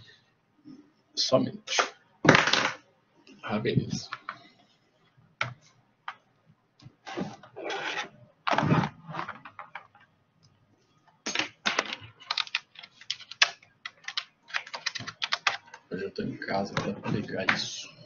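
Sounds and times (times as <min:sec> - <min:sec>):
keyboard typing: 0:11.3 - 0:15.9.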